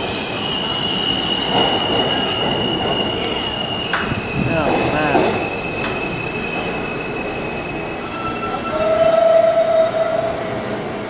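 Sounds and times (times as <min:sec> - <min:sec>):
subway train wheels squealing: 0:00.0 - 0:11.0
lower wheel squeal: 0:05.6 - 0:10.6.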